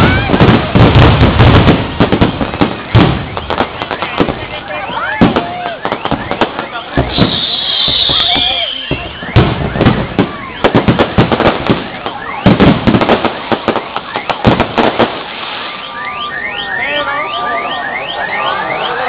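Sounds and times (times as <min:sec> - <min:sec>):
fireworks bangs and crackles: 0:00.0 - 0:19.0
alarm steady tones: 0:01.2 - 0:19.0
alarm rising electronic chirp: 0:07.0 - 0:10.6, 0:15.6 - 0:19.0.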